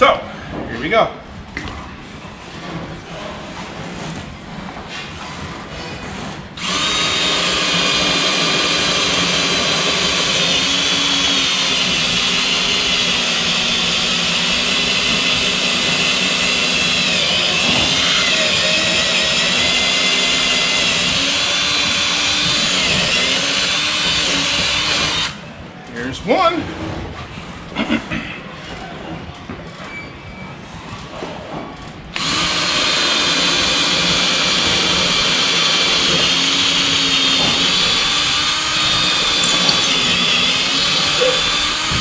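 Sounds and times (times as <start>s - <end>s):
cordless drill boring: 6.6s - 25.4s, 32.2s - 42.0s.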